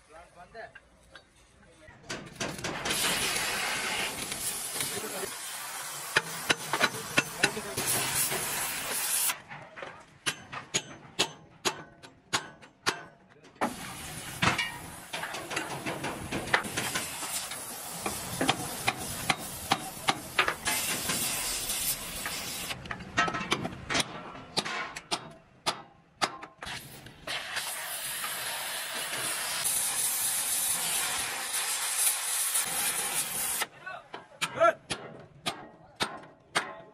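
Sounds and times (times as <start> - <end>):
gas torch hissing: 2.8 - 9.4, 13.6 - 22.8, 26.6 - 33.7
sharp metal knocks: 10.2 - 13.3.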